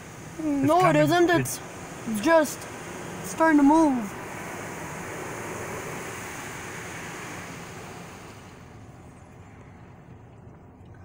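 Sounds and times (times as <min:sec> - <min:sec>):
car wash water spray hissing: 0:00.0 - 0:08.8.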